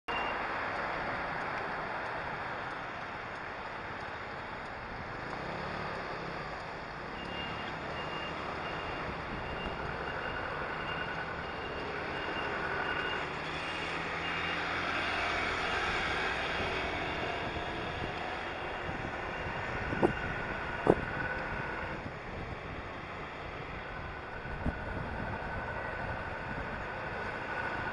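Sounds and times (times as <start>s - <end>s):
wind: 0.0s - 27.9s
short electronic beeps: 0.1s - 0.4s
road noise: 0.1s - 27.9s.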